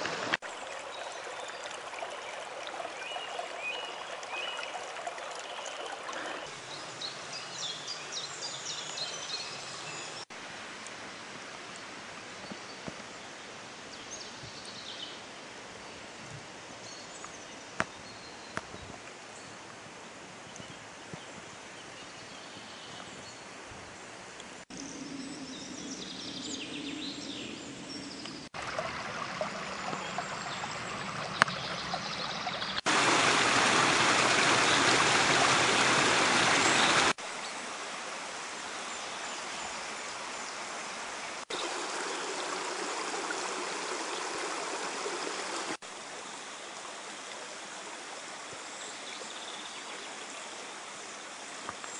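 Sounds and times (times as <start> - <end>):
stream splashing over rocks: 0.0 - 10.8, 28.5 - 51.9.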